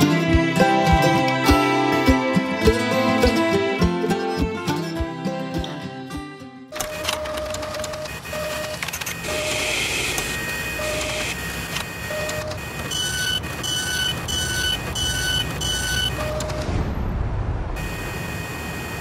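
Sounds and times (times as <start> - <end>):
mechanical whir and clatter: 6.8 - 16.9.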